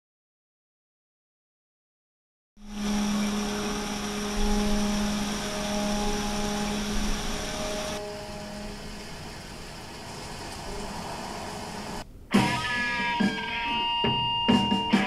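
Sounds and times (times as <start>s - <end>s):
low humming engine drone: 2.6s - 12.2s.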